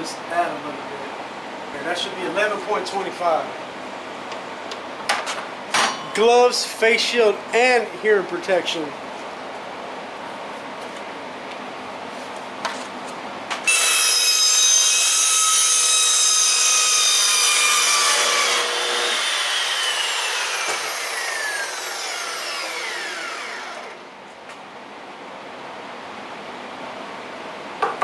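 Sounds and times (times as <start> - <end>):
metal chop saw cutting steel: 13.7 - 24.0
saw blade spinning down: 15.2 - 24.0.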